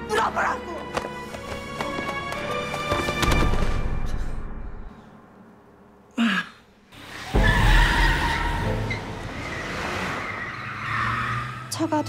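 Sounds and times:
music: 0.0s - 6.0s, 7.2s - 9.3s
tyres squealing and skidding: 7.0s - 12.0s.

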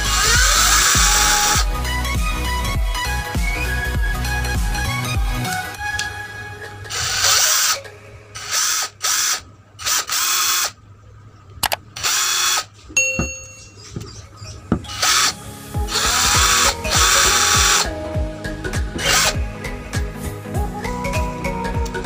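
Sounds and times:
cordless drill motor spinning: 0.0s - 1.8s, 6.9s - 7.8s, 8.4s - 10.8s, 12.0s - 12.7s, 14.8s - 18.0s, 19.0s - 19.4s.

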